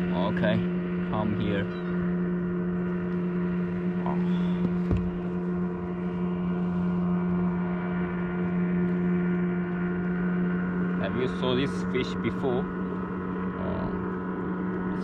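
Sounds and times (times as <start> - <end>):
steady low hum: 0.0 - 15.0
dull knock: 4.6 - 5.2.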